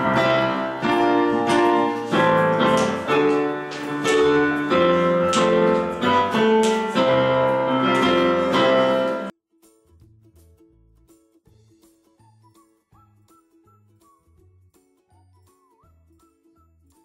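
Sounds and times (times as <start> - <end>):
electronic keyboard piano melody: 0.0 - 9.3.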